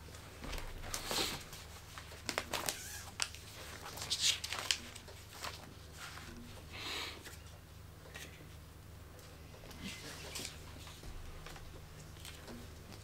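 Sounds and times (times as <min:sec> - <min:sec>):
paper pages rustling: 0:00.0 - 0:06.4, 0:09.7 - 0:13.0.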